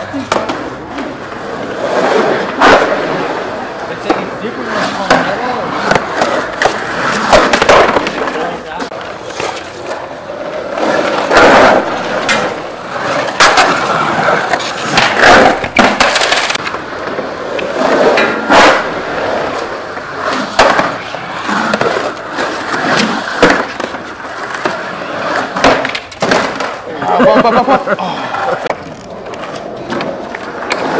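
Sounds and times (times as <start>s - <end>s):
skateboard wheels rolling on concrete: 0.0s - 30.9s
skateboard knocks: 25.5s - 26.8s.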